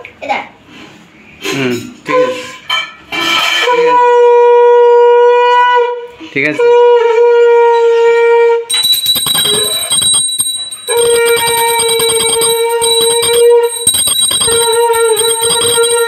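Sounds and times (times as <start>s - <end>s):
conch shell blasts: 8.7s - 16.0s
hand bell ringing rapidly: 8.7s - 16.0s.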